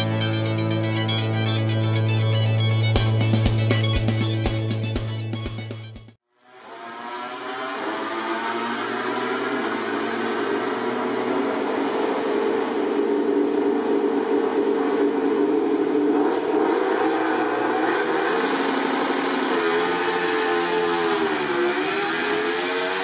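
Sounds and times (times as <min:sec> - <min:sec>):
motorcycle engine revving: 0:06.4 - 0:23.0.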